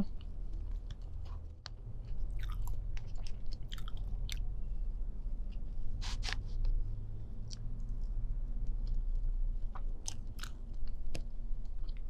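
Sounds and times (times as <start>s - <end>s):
wet chewing sounds: 2.0s - 4.5s, 9.6s - 12.0s.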